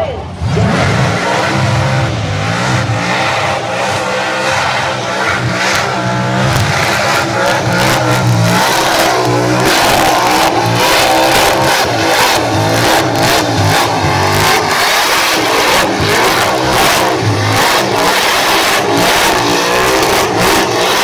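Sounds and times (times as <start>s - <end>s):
supercharged engine revving: 0.2s - 21.0s.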